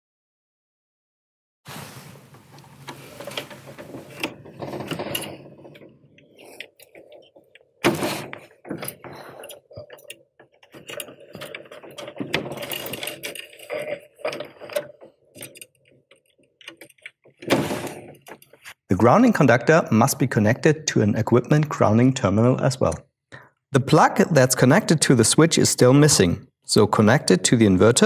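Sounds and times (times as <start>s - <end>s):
screwdriver clicking and scraping: 2.9s - 18.8s.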